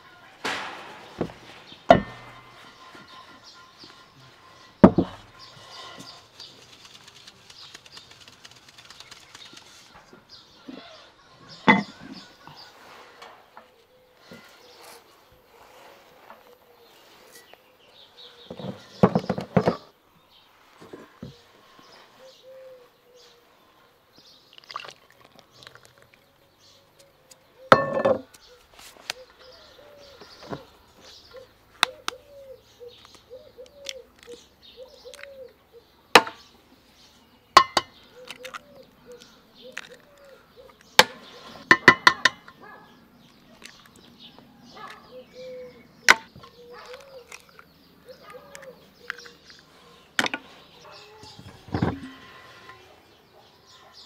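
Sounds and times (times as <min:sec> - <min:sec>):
bird calling softly: 0:20.9 - 0:54.0
eggs cracking against bowl rim: 0:35.0 - 0:35.4, 0:37.6 - 0:42.5, 0:46.1 - 0:49.7.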